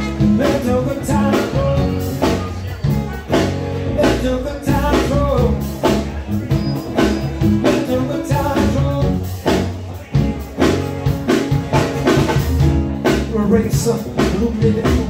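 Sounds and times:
person singing: 0.0s - 6.2s, 7.0s - 10.1s, 13.0s - 15.0s
drum kit: 0.0s - 15.0s.

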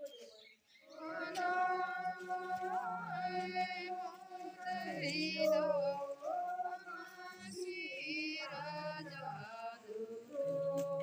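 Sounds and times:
group singing a hymn: 0.0s - 11.0s.

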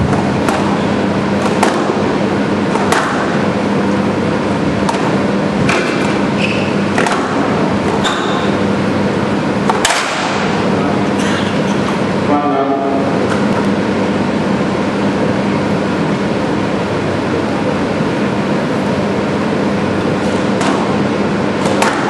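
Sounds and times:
ball hitting court walls: 0.0s - 3.5s, 4.8s - 8.6s, 9.6s - 10.6s, 20.3s - 22.0s
racket hitting ball: 0.0s - 3.6s, 4.8s - 8.6s, 9.6s - 10.6s, 20.2s - 22.0s
shoes squeaking on court floor: 6.0s - 6.9s, 7.9s - 8.6s.

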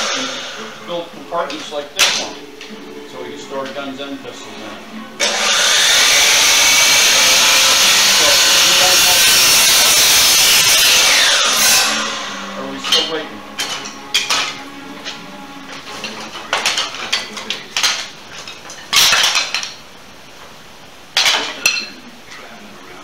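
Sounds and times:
miter saw motor winding down: 5.2s - 13.2s
wood pieces knocking and clattering: 13.6s - 19.8s.

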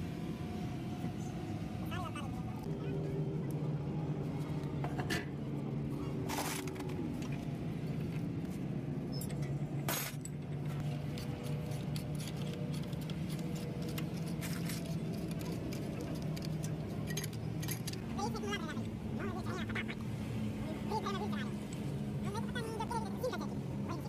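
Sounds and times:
metal tools clinking: 11.1s - 18.0s.

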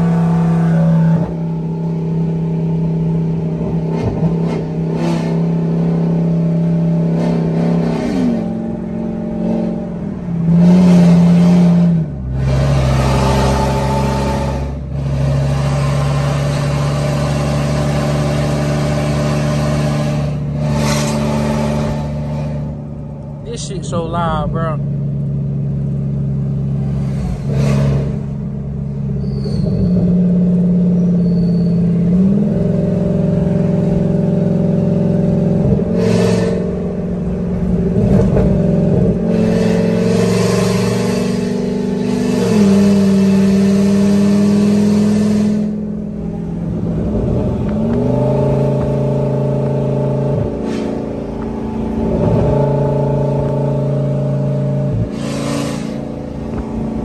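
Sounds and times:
truck engine drone: 0.0s - 57.0s
people talking: 23.5s - 24.8s.

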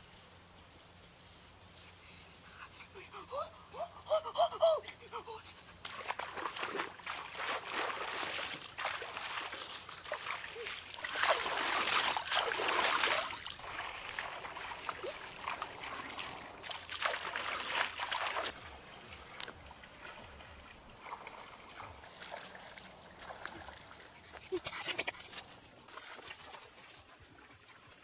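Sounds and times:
hands splashing in water: 5.8s - 18.6s
water trickling and dripping: 5.8s - 24.5s.

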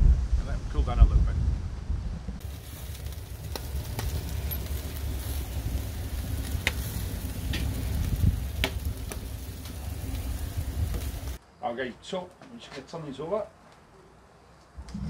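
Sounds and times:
wind rumble on microphone: 0.0s - 11.4s
embers crackling and popping: 2.4s - 11.4s
meat sizzling on a grill: 2.4s - 11.4s.

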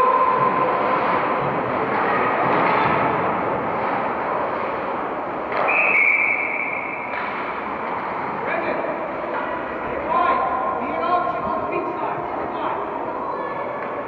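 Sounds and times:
crowd murmur: 0.0s - 14.0s
referee whistle blast: 5.6s - 7.1s.

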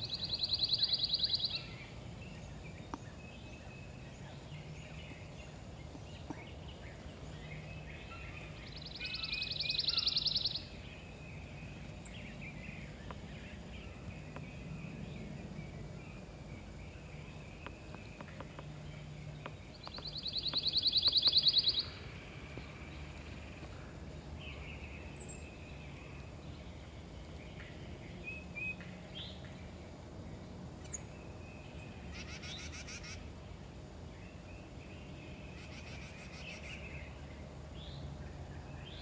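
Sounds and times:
songbird trilling: 0.0s - 23.8s, 32.1s - 33.3s
birds chirping: 0.0s - 39.0s
faint low hum: 0.0s - 39.0s.

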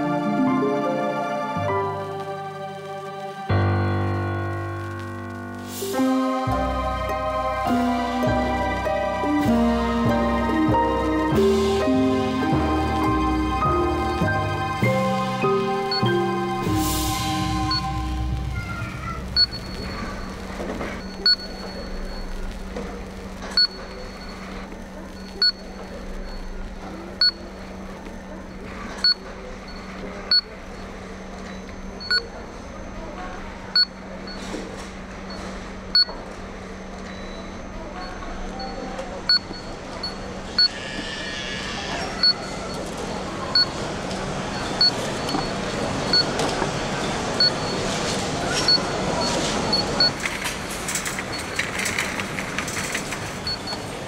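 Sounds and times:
steady background noise: 0.0s - 54.0s
barcode scanner beeping: 43.5s - 43.8s, 44.5s - 46.5s, 48.5s - 50.2s.

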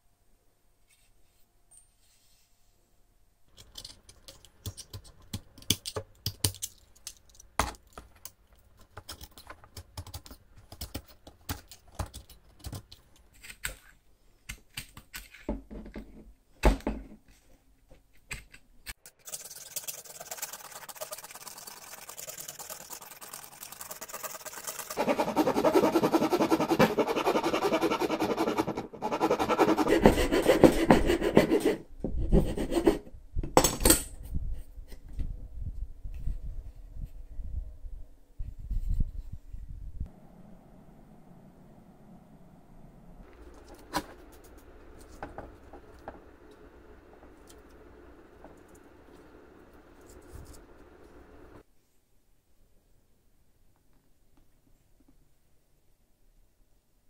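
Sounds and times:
knife shaving bamboo: 19.3s - 31.8s
metal file rasping on bamboo: 25.0s - 33.0s.

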